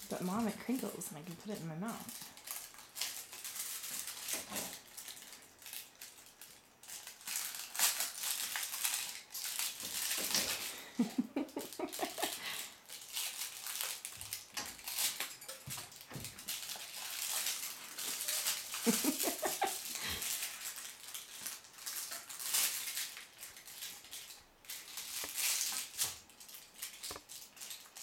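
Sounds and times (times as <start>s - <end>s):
wrapper crinkling: 0.0s - 28.0s.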